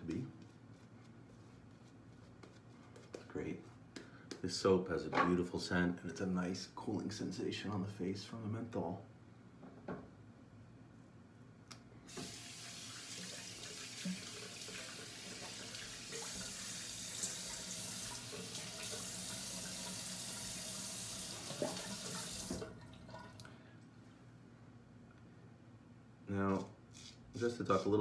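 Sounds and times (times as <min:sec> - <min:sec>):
bathroom tap running: 0:12.1 - 0:23.5.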